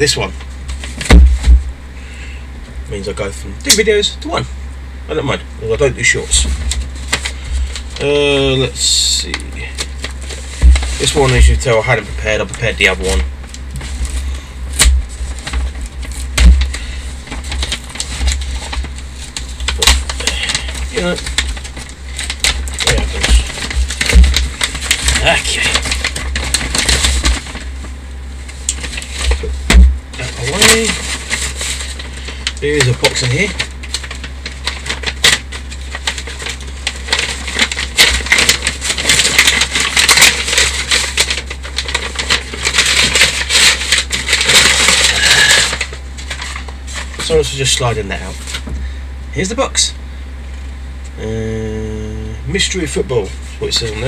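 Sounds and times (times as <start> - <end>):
steady low rumble: 0.0 - 39.1
packet rustling and crinkling: 6.3 - 48.8.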